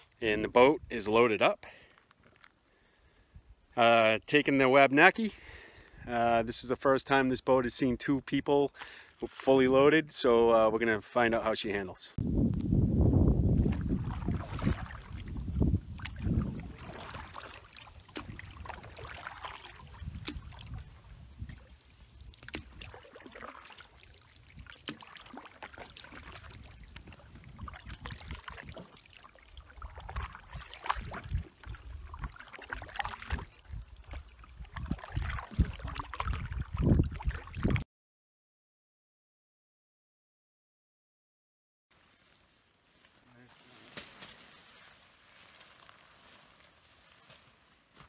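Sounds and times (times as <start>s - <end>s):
paddles dipping through water: 13.5s - 37.8s, 42.0s - 48.0s
water trickling off paddles: 13.6s - 37.8s.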